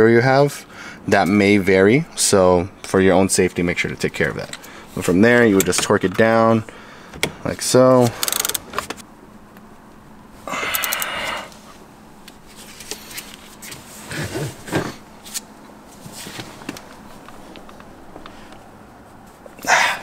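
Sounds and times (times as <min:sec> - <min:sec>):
torque wrench ratcheting: 0:08.2 - 0:08.7, 0:10.7 - 0:11.2
faint clicks and knocks: 0:16.6 - 0:18.6.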